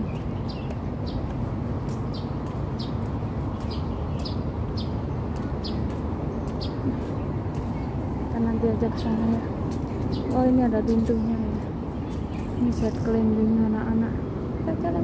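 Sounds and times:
low rumble of city park: 0.0s - 15.0s.

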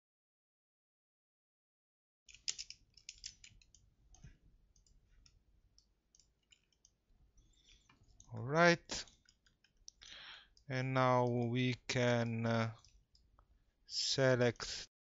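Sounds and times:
mouse and keyboard clicks: 2.3s - 3.8s.

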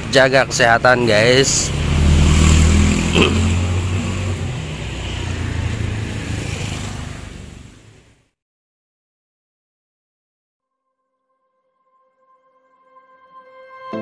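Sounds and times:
vehicle engine humming: 0.0s - 8.2s.

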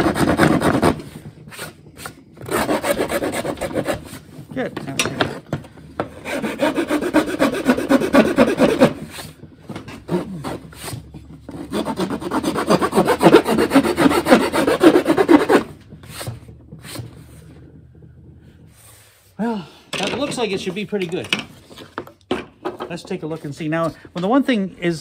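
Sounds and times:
file rasping on wood: 0.0s - 4.2s, 6.0s - 18.8s.

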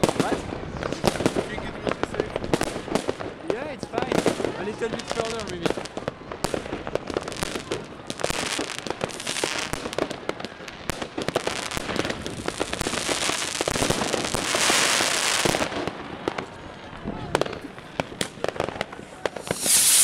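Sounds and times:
fireworks and firecrackers banging: 0.0s - 20.0s
hissing crackle: 18.8s - 20.0s.

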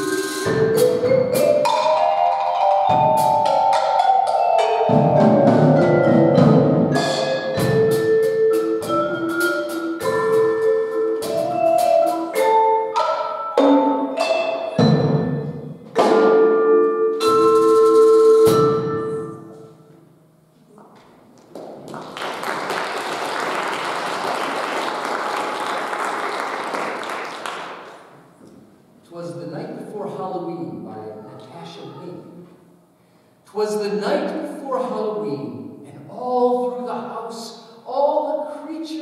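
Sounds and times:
mallet keyboard instruments: 0.0s - 20.0s.

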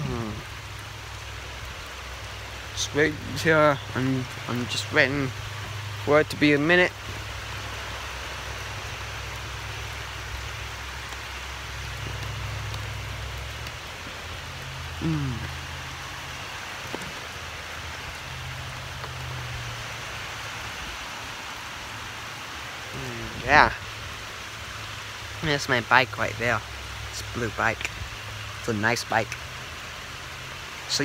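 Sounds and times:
rain falling on lawn: 0.0s - 31.0s
short falling vocal sound: 15.0s - 15.6s.

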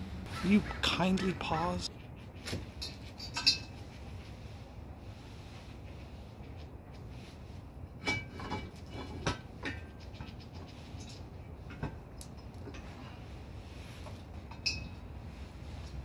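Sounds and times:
metal clinks and knocks: 2.8s - 3.8s, 8.0s - 9.9s, 14.4s - 15.0s.

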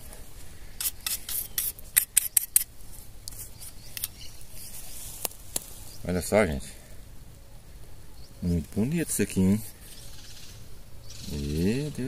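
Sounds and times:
scraping and rubbing in dirt: 0.0s - 6.0s.

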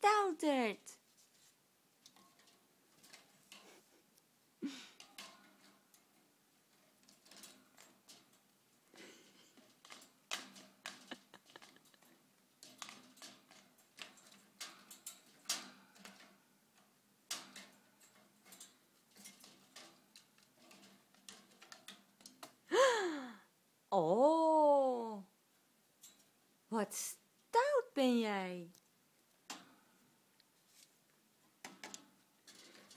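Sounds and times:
bird pecking at a toy: 5.0s - 22.6s.

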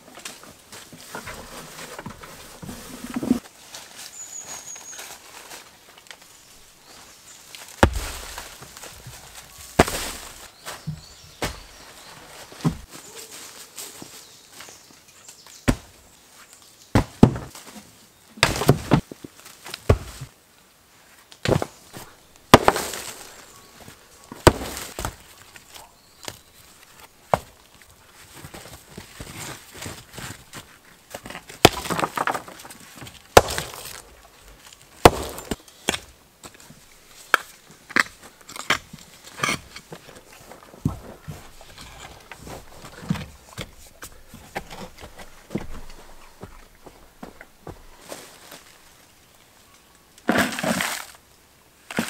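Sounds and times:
rocks clunking together: 7.8s - 11.8s, 18.4s - 20.3s, 21.4s - 48.1s
pick chopping into soil: 21.4s - 23.4s, 24.4s - 25.2s, 33.4s - 34.1s, 35.0s - 36.1s.

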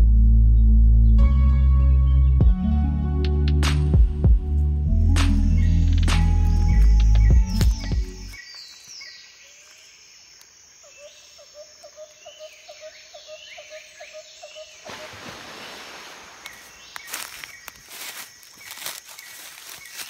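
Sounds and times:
birds chirping: 5.3s - 20.0s
rustling hiss: 14.9s - 18.6s.

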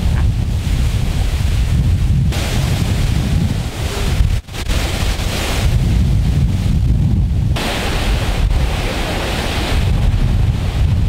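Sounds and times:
wind buffeting microphone: 0.0s - 11.0s
waterfall rushing: 2.3s - 5.8s, 7.6s - 11.0s.

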